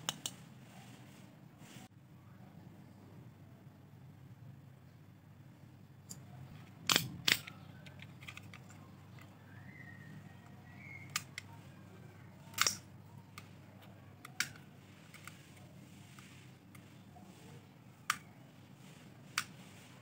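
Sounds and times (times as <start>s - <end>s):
sharp metallic clicks: 12.5s - 13.5s.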